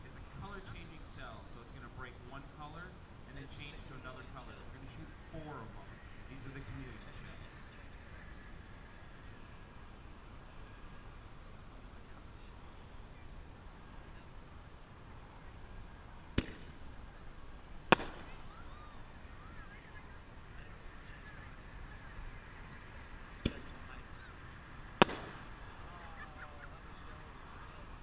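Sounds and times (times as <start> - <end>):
firework shell bang: 25.0 - 25.5.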